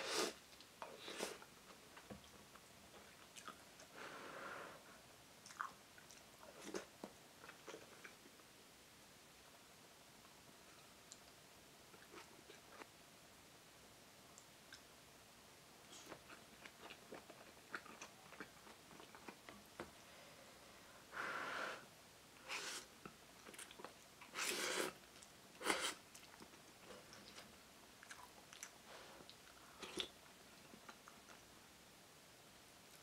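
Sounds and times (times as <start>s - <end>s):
chewing with small clicks: 2.0s - 3.9s, 5.4s - 8.3s, 11.0s - 12.9s, 15.9s - 20.0s, 23.0s - 24.3s, 26.1s - 31.5s.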